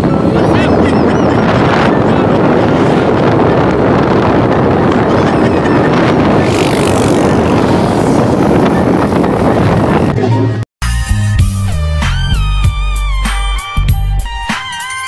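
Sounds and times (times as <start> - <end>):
wind buffeting microphone: 0.0 - 10.2
motorcycle engine running: 2.4 - 10.1.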